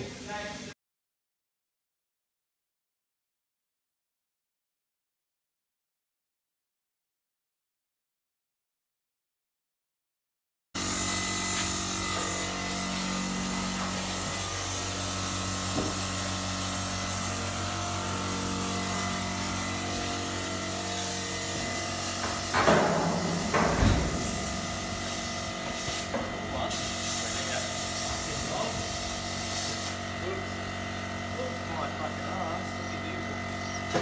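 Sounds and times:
steady hum: 11.2s - 29.5s
heavy knock: 22.3s - 25.6s.

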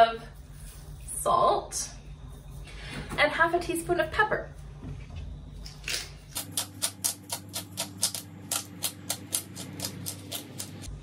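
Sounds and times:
pepper grinder crunching: 5.9s - 10.9s.

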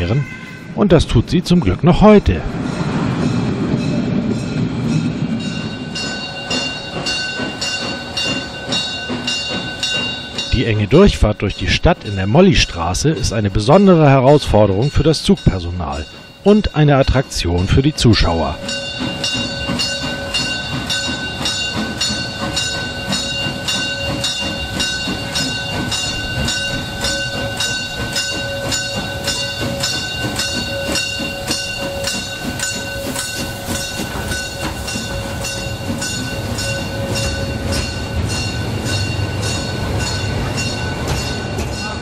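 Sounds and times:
low rumble of train carriages: 0.0s - 42.0s
steam locomotive bell ringing: 0.0s - 42.0s.

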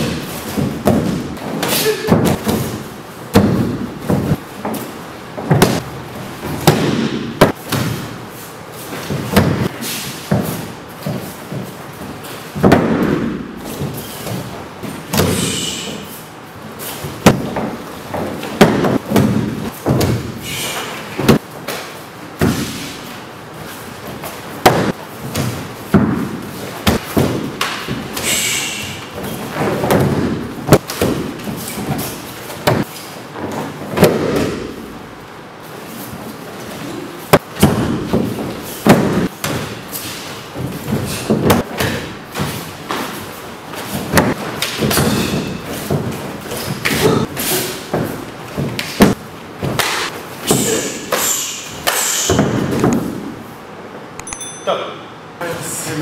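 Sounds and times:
bodies thudding onto padded mats: 0.0s - 8.2s, 9.0s - 15.5s, 17.0s - 20.4s, 23.9s - 28.2s, 29.1s - 34.8s, 37.3s - 50.7s.

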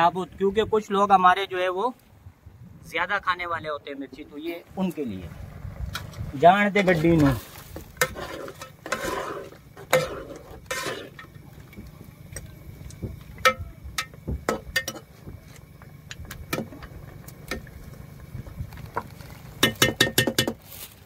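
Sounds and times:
low rumble: 2.2s - 6.7s
ladle scraping metal pot: 6.9s - 11.4s.

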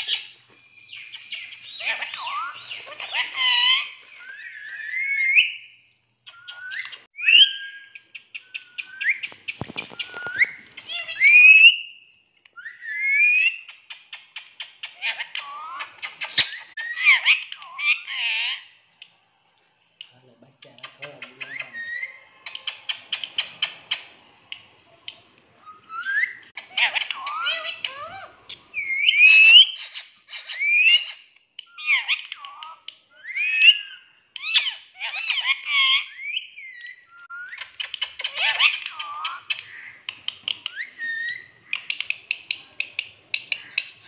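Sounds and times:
parakeet calling: 0.0s - 12.0s, 25.6s - 44.0s.

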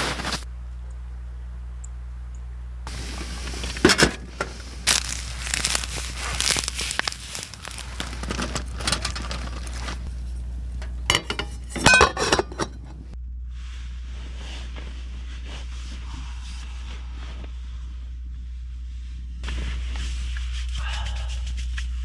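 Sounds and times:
wood fire crackling and popping: 4.8s - 10.1s.

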